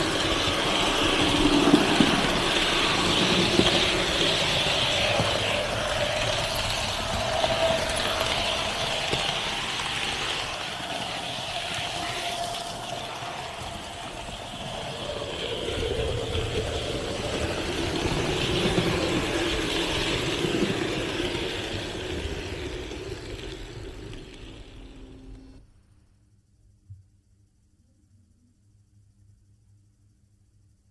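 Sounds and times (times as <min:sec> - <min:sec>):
model train whirring on track: 0:00.0 - 0:25.6.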